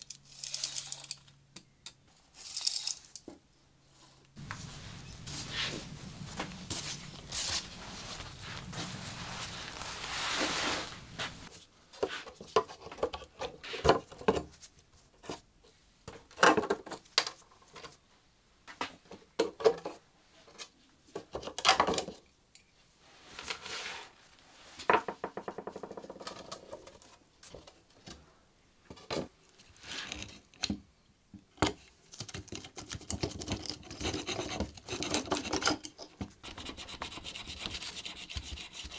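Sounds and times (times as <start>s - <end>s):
fabric rustling: 4.4s - 11.5s
tools clicking and knocking on wood: 31.4s - 37.2s.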